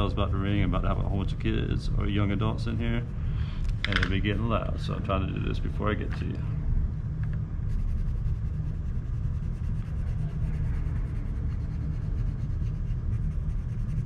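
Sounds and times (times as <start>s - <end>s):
low rumble: 0.0s - 14.0s
pencil scratching on paper: 7.6s - 14.0s.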